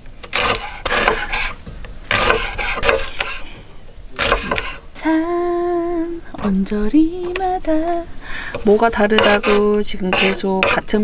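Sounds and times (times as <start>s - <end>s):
knife slicing onions on wooden board: 2.1s - 3.4s, 4.2s - 4.8s, 9.1s - 10.9s.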